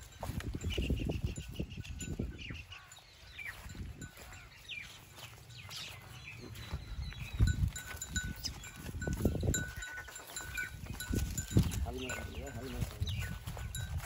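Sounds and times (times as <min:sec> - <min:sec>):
bull hooves thumping and scuffing: 0:00.0 - 0:14.0.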